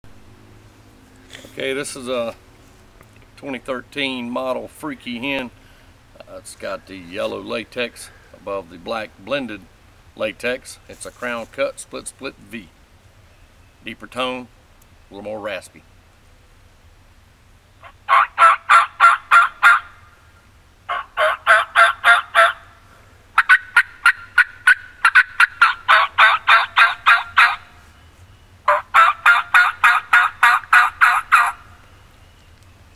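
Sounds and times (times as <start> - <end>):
turkey call yelps: 17.8 - 20.2, 20.9 - 22.8, 23.4 - 27.7, 28.6 - 31.8.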